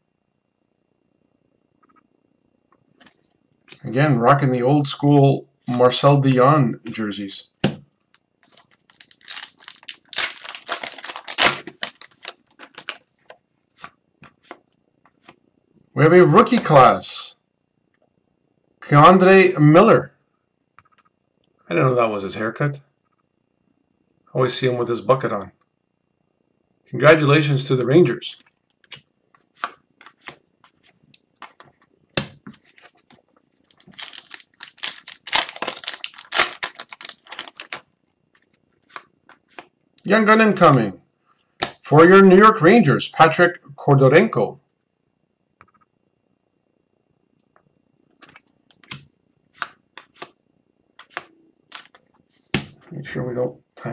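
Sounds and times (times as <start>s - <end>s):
foil wrapper crinkling: 8.1s - 13.9s, 32.6s - 39.6s, 51.0s - 52.0s
cards rustling: 8.1s - 15.4s, 28.4s - 39.7s, 48.2s - 50.4s, 51.0s - 52.2s
cards clicking and tapping: 28.8s - 30.8s, 31.4s - 33.2s, 48.2s - 50.4s, 51.0s - 52.8s.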